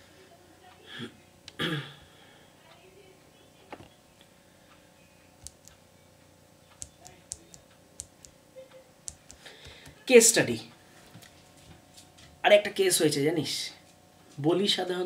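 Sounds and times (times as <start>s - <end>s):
man clearing his throat: 1.0s - 2.0s
faint computer clicks: 5.4s - 5.8s.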